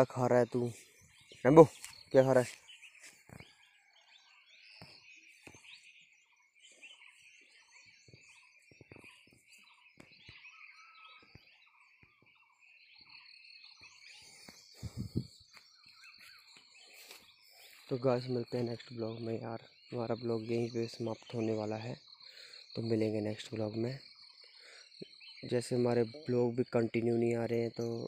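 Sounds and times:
insects chorus: 6.7 - 28.0.

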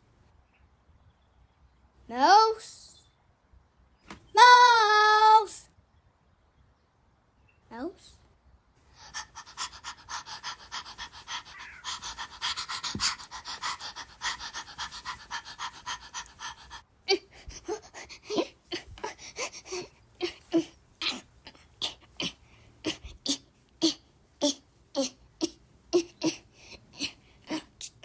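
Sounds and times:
person panting: 8.9 - 23.4.

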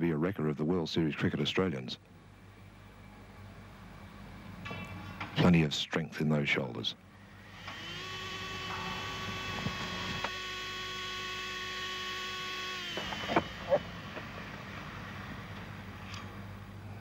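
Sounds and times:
motor-like hum: 7.1 - 17.0.

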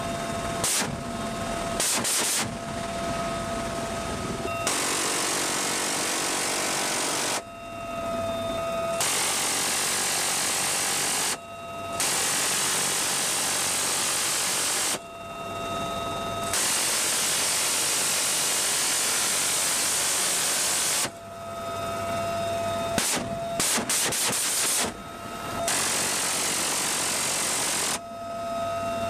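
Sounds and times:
helicopter turbine whine: 0.0 - 29.0
machine gun bursts: 1.8 - 2.6, 4.7 - 7.4, 23.0 - 25.0.

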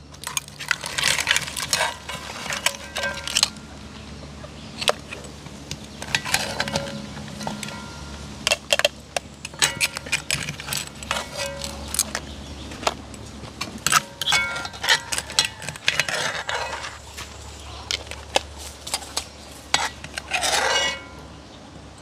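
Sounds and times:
metal spoon clinking on pot: 6.0 - 8.8, 9.5 - 12.2, 13.8 - 16.9.

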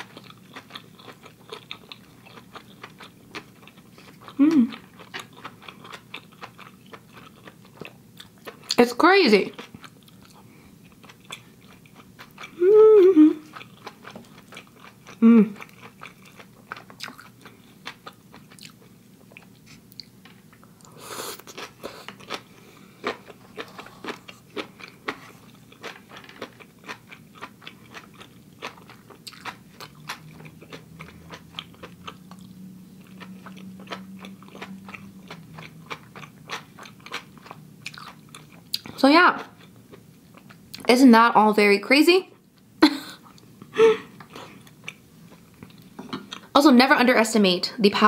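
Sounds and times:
wet chewing and mouth clicks: 0.0 - 8.8, 13.4 - 22.4, 23.0 - 40.9.

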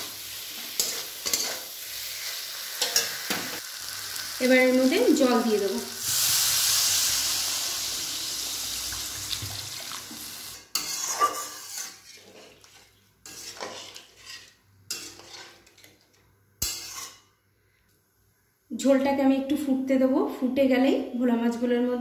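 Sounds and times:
water hissing in hot pan: 0.0 - 10.7
spatula scraping metal pan: 0.7 - 3.2, 10.7 - 15.9, 16.6 - 17.2.

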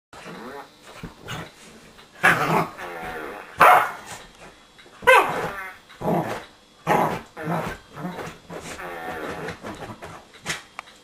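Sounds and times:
dog barking and growling: 2.2 - 4.2, 5.0 - 10.6.

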